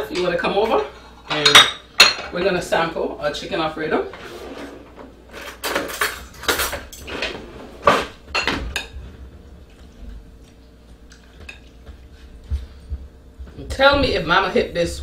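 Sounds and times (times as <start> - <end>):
cutlery and dishes clinking: 5.3 - 9.0.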